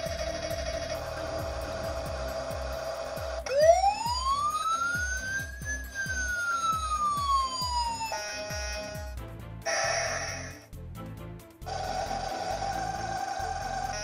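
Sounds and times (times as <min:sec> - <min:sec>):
toy electronic siren wail: 0:00.0 - 0:09.1, 0:11.7 - 0:14.0
background music with beat: 0:00.0 - 0:14.0.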